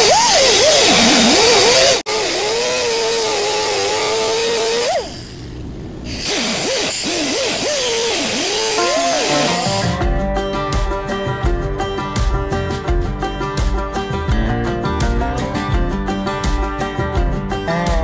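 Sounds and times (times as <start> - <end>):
cutoff wheel grinding metal: 0.0 - 10.0.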